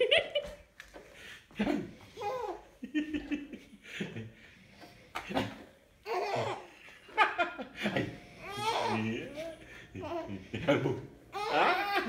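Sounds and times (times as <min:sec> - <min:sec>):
baby laughing: 0:02.1 - 0:03.4, 0:05.3 - 0:07.2, 0:08.4 - 0:10.5, 0:11.3 - 0:12.0.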